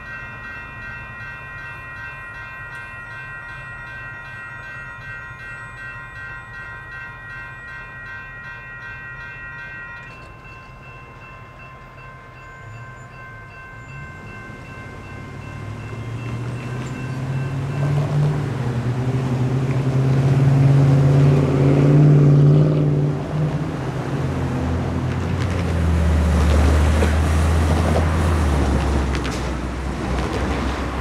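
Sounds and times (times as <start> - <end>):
electronic crossing bell ringing: 0.0 - 19.4
cars driving over crossing: 14.0 - 31.0.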